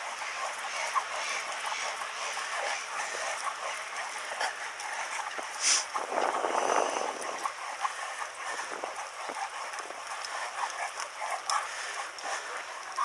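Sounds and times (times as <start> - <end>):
bicycle tyre noise: 0.0 - 13.0
dog panting: 0.0 - 13.0
wind rushing: 5.6 - 7.7.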